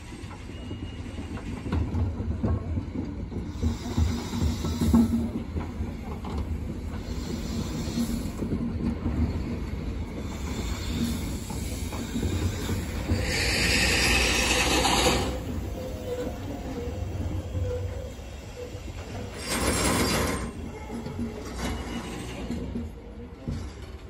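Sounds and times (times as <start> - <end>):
wheels screeching: 12.1 - 16.3.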